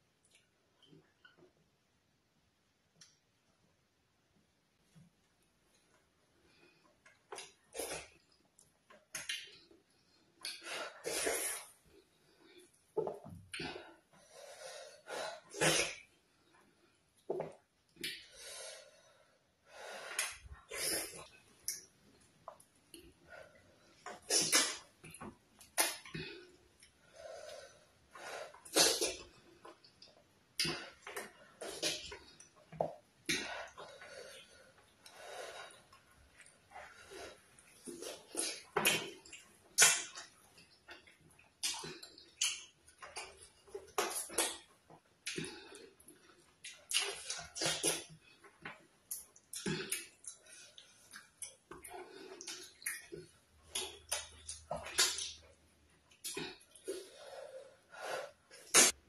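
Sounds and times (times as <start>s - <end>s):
wet chewing and lip smacks: 7.0s - 9.8s, 37.8s - 44.6s, 45.2s - 56.9s.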